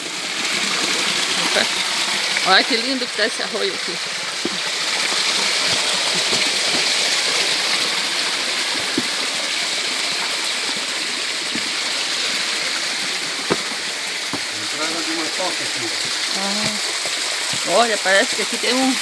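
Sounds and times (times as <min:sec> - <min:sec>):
creek water rushing and splashing: 0:00.0 - 0:19.0.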